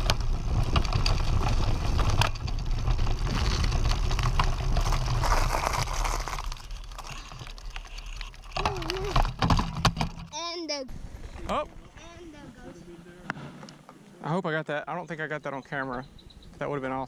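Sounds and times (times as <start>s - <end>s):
bike tyre rolling on dirt: 0.0s - 10.3s.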